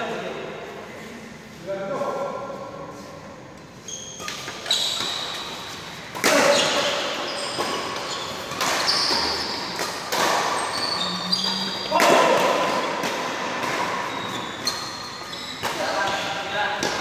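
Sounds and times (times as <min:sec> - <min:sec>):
shoes squeaking on court: 0:03.6 - 0:13.0, 0:13.6 - 0:17.0
rackets hitting shuttlecock: 0:04.1 - 0:17.0.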